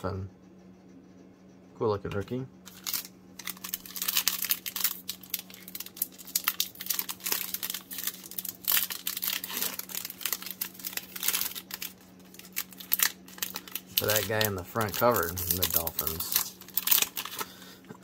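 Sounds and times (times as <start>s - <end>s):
foil wrapper crinkling: 2.6s - 17.9s.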